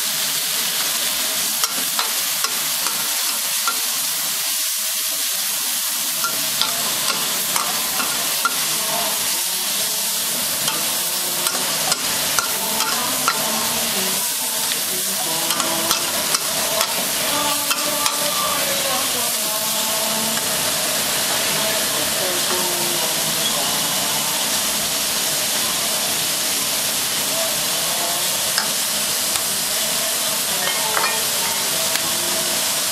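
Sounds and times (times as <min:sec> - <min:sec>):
vegetables sizzling in a wok: 0:00.0 - 0:32.9
metal spoon scraping a wok: 0:06.2 - 0:08.8, 0:10.3 - 0:13.6.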